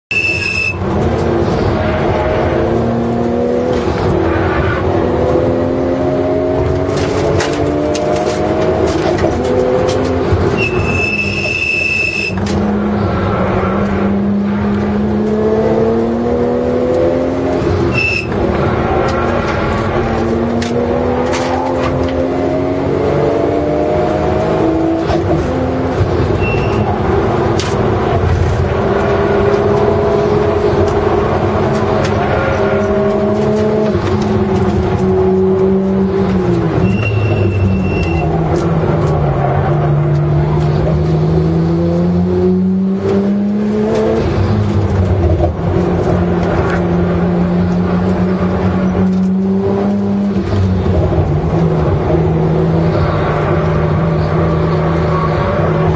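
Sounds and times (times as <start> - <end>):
short high-pitched squeals: 0.1 - 0.8, 10.6 - 12.4, 17.9 - 18.4, 26.4 - 26.9, 36.8 - 38.3
race car engine revving: 0.8 - 11.4, 12.0 - 55.9.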